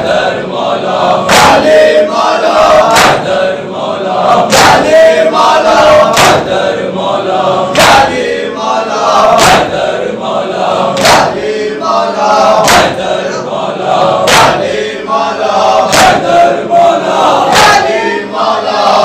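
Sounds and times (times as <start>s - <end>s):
men chanting together: 0.0s - 19.0s
hands slapping chests: 1.3s - 1.7s, 2.9s - 3.3s, 4.5s - 4.9s, 6.1s - 6.5s, 7.7s - 8.2s, 9.4s - 9.8s, 11.0s - 11.5s, 12.6s - 13.0s, 14.2s - 14.7s, 15.9s - 16.3s, 17.5s - 18.0s.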